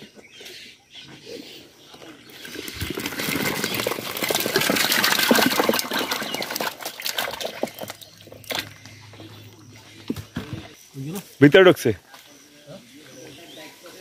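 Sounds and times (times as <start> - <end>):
fish splashing into water: 2.4 - 8.8.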